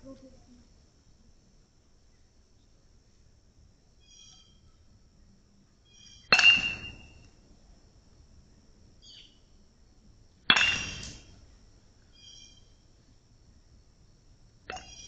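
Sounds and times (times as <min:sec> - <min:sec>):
metal bat hitting ball: 0:06.2 - 0:07.2, 0:10.5 - 0:11.4.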